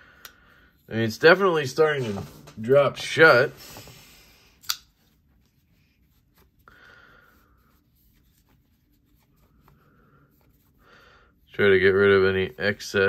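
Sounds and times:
cloth rubbing a knife: 0:04.9 - 0:06.7, 0:07.3 - 0:10.8.

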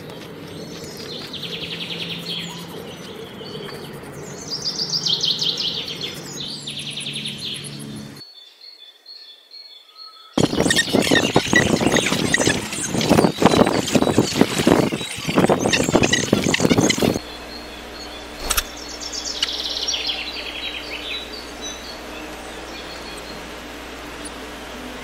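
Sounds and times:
bird rattling trills: 0:10.4 - 0:25.0
loud rough noise: 0:10.4 - 0:25.0
low steady hum: 0:10.4 - 0:25.0.

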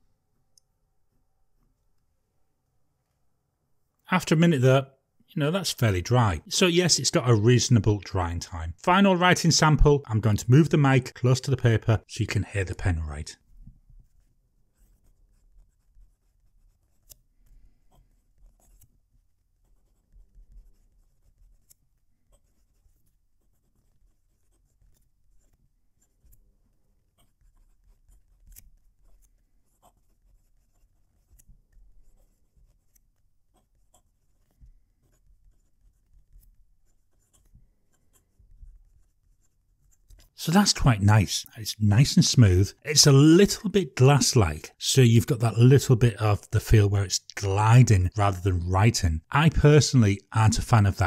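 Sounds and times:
fountain pen scratching on paper: 0:13.4 - 0:40.4
pen nib ticks: 0:28.1 - 0:30.1.

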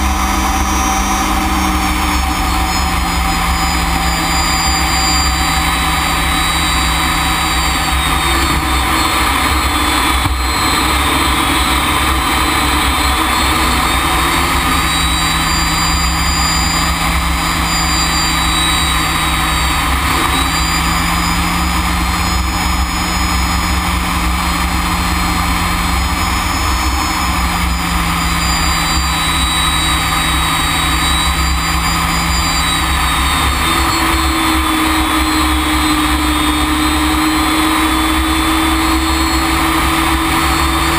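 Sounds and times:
jet engine rumble and whine: 0:00.0 - 0:40.9.

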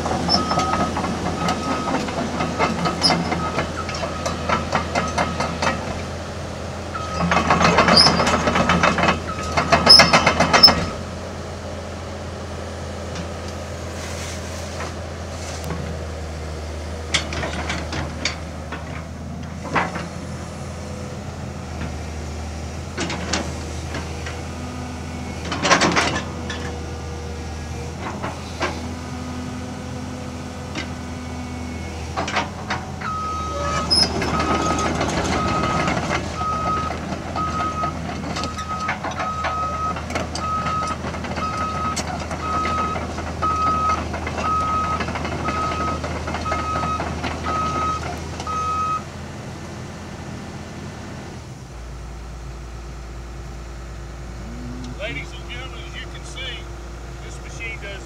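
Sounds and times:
hydraulics working: 0:00.0 - 0:11.3, 0:31.8 - 0:49.1, 0:53.8 - 0:58.0
diesel engine running: 0:00.0 - 0:58.0.

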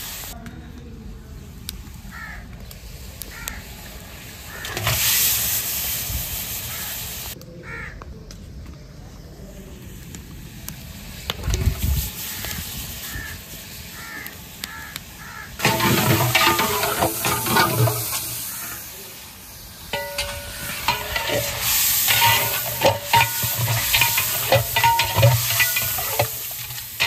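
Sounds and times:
oil sizzling: 0:00.0 - 0:00.4, 0:02.6 - 0:07.4, 0:09.9 - 0:27.0
metal spatula scraping pot: 0:15.6 - 0:18.4, 0:19.9 - 0:27.0.

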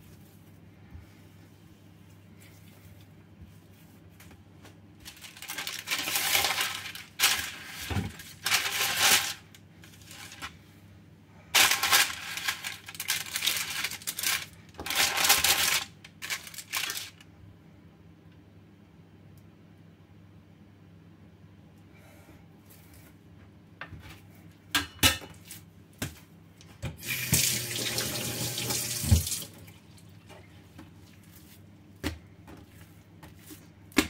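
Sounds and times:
baking parchment rustling: 0:00.0 - 0:17.3, 0:30.9 - 0:34.0.

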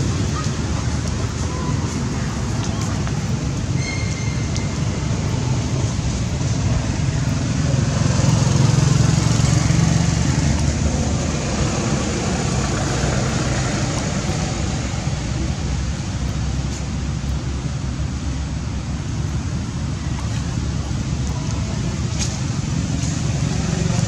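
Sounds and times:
outdoor noise: 0:00.0 - 0:24.0
vehicle rumbling past: 0:01.9 - 0:17.8.

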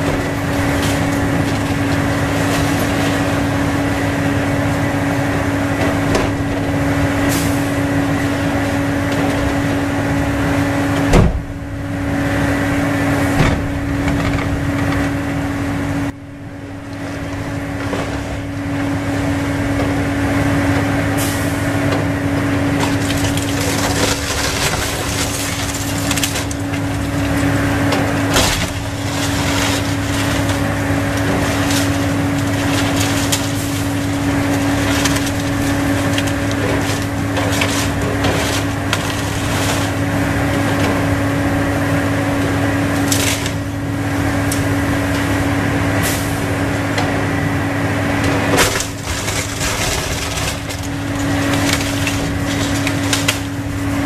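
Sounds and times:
wood cracking and splintering: 0:00.0 - 0:07.8, 0:13.4 - 0:15.2, 0:21.7 - 0:43.8, 0:48.2 - 0:54.0
excavator diesel engine humming: 0:00.0 - 0:54.0.

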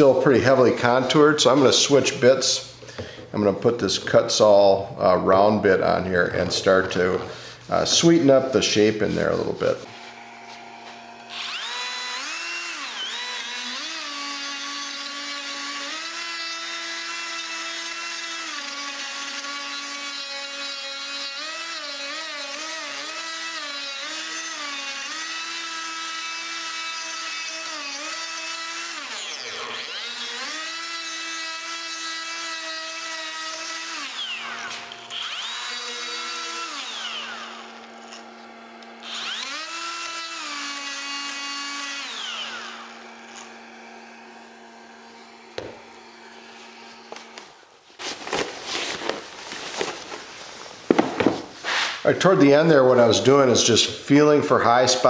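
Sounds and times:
die grinder whining into wood: 0:09.2 - 0:47.7.

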